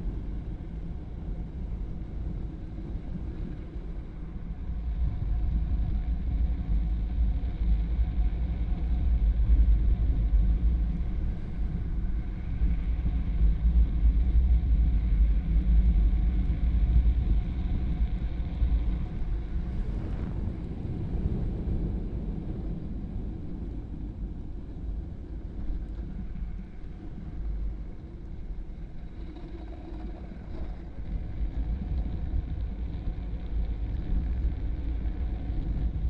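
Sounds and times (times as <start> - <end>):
wind rumble on microphone: 0.0 - 36.0.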